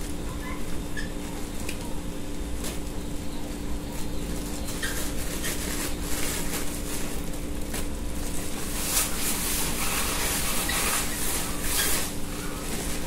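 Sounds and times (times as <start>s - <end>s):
steady low hum: 0.0s - 13.0s
package rustling and scraping: 4.0s - 13.0s.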